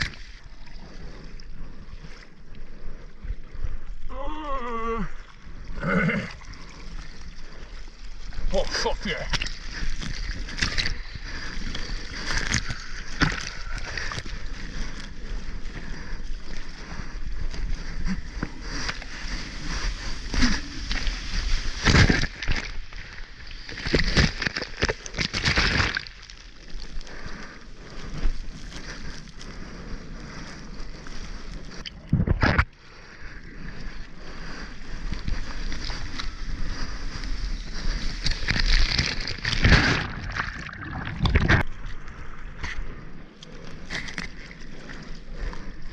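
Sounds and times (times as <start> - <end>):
waves splashing and churning: 0.0 - 45.9
breaking foam rushing: 18.9 - 22.8, 23.6 - 26.4, 38.1 - 41.7.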